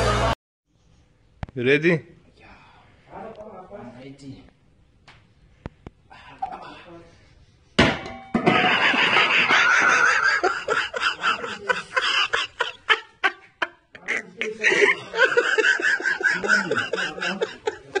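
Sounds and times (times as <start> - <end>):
people laughing: 8.5 - 18.0.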